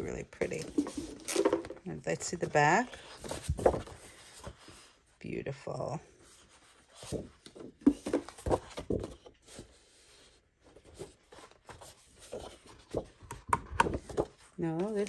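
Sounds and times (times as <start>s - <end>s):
paper rustling: 2.4s - 4.9s, 6.4s - 15.0s.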